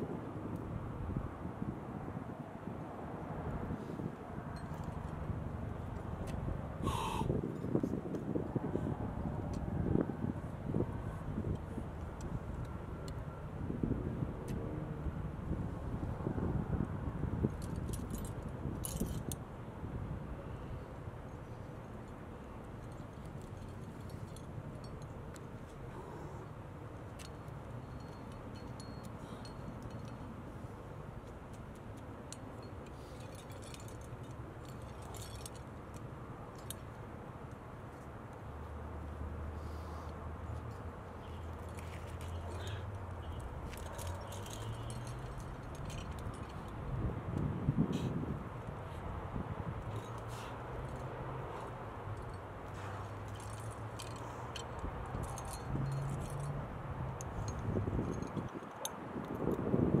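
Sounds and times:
metal climbing gear clinking: 0:04.5 - 0:08.2, 0:17.3 - 0:19.4, 0:20.4 - 0:38.4, 0:39.6 - 0:59.6.

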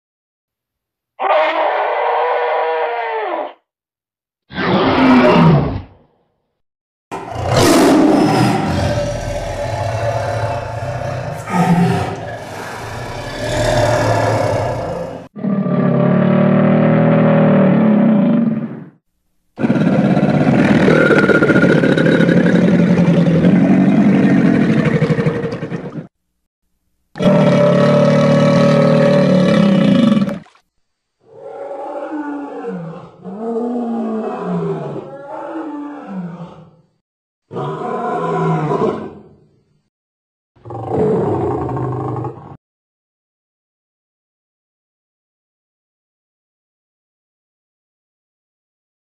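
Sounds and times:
crocodilian roars: 0:01.2 - 0:03.6, 0:04.5 - 0:06.0, 0:07.1 - 0:18.9, 0:19.6 - 0:26.1, 0:27.2 - 0:30.5, 0:31.2 - 0:36.9, 0:37.5 - 0:39.4, 0:40.6 - 0:42.6
tiger roars and growls: 0:01.2 - 0:03.6, 0:04.5 - 0:06.0, 0:07.1 - 0:18.9, 0:19.6 - 0:26.1, 0:27.2 - 0:30.5, 0:31.2 - 0:39.5, 0:40.6 - 0:42.6.

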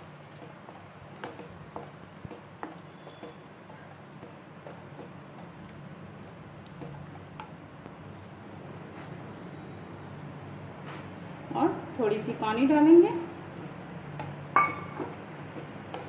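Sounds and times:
wooden spatula stirring thick gravy: 0:00.0 - 0:08.8
spatula tapping pan: 0:00.3 - 0:05.6.

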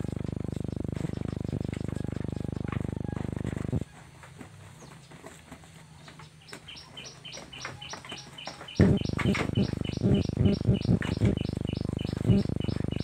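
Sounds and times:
small bird chirping: 0:00.0 - 0:03.2, 0:06.0 - 0:13.0.

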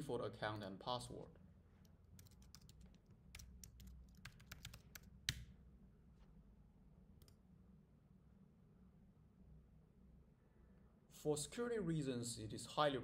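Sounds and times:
low steady hum: 0:00.0 - 0:13.0
typing on computer keyboard: 0:02.2 - 0:05.4.

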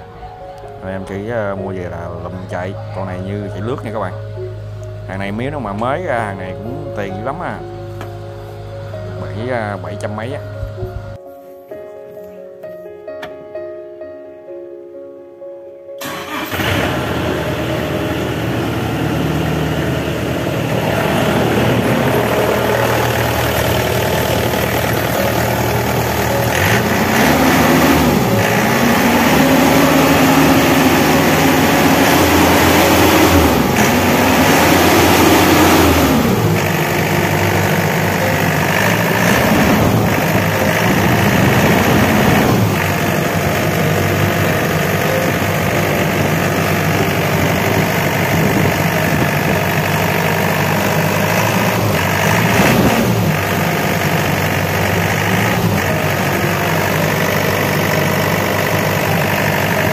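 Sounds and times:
diesel engine starting and idling: 0:00.0 - 0:10.3, 0:16.0 - 0:59.9
engine revving: 0:16.0 - 0:59.9.

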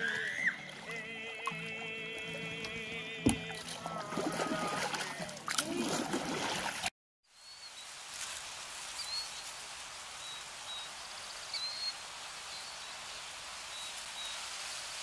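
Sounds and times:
steady rushing hiss: 0:07.8 - 0:15.0.

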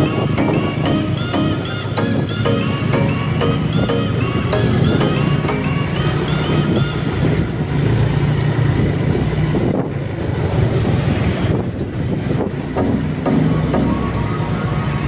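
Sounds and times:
background music: 0:00.0 - 0:07.2, 0:12.8 - 0:14.9
wind rushing over microphone: 0:06.6 - 0:12.8.

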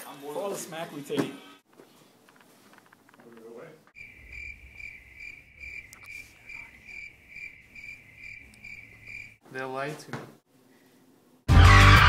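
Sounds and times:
cricket chirping: 0:03.9 - 0:09.4.

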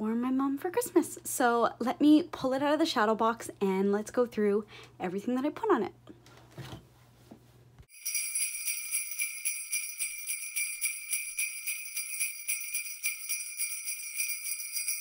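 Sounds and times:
jingle bells shaken: 0:07.9 - 0:15.0.

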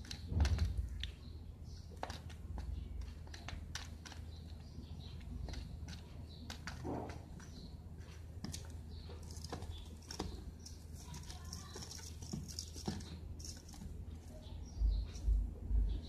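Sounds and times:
low steady hum: 0:00.0 - 0:16.0
small birds chirping: 0:00.0 - 0:16.0
low rumbling thumps: 0:14.8 - 0:16.0.

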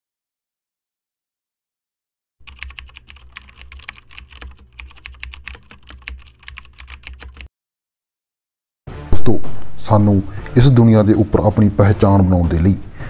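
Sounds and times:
rapid keyboard typing: 0:02.4 - 0:07.5.

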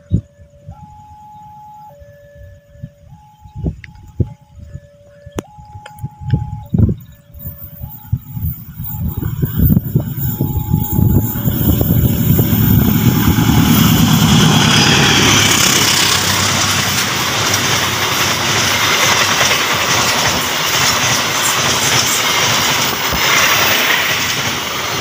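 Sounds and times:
diesel locomotive engine rumble: 0:00.0 - 0:25.0
train wheels rushing on rails: 0:07.4 - 0:25.0.

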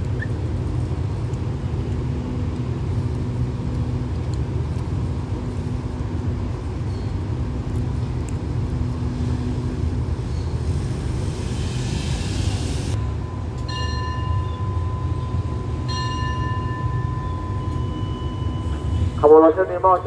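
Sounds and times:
train coaches rumbling: 0:00.0 - 0:20.0
hiss: 0:09.2 - 0:13.0
high ringing tone: 0:13.0 - 0:19.2.

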